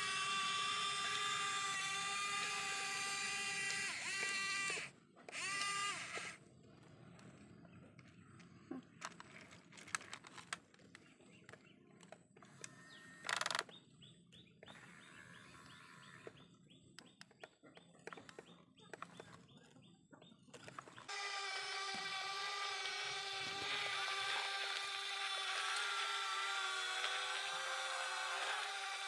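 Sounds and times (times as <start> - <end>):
toy motors whirring: 0.0 - 7.4, 9.0 - 13.7, 14.6 - 16.4, 17.1 - 19.5, 20.6 - 29.0
small clicks: 0.2 - 13.8, 15.6 - 19.8
birds chirping: 6.4 - 21.1.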